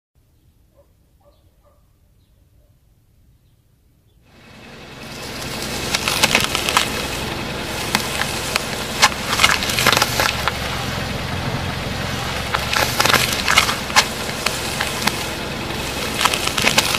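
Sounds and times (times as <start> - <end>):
car running low: 4.2 - 16.9
tyre crushing objects with cracks: 5.7 - 7.1, 7.8 - 10.6, 12.4 - 15.4, 16.0 - 16.9.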